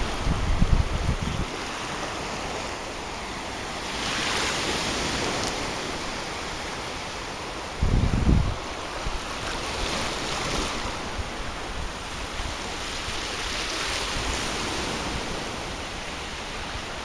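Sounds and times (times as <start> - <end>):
wind buffeting microphone: 0.0 - 2.6, 7.5 - 15.5
sea waves washing over sand: 0.0 - 17.0.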